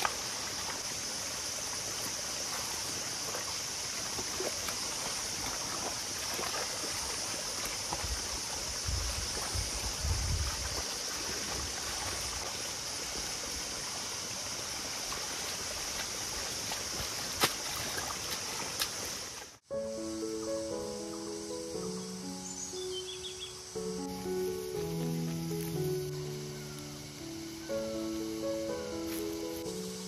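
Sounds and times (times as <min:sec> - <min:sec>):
mud and water sloshing: 0:00.0 - 0:19.6
steady hiss: 0:18.9 - 0:30.0.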